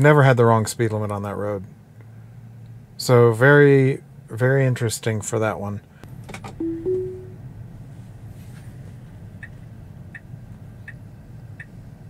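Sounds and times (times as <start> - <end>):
low cabin hum: 6.1 - 12.0
two-note rising chime: 6.6 - 7.4
turn signal ticking: 9.4 - 11.8.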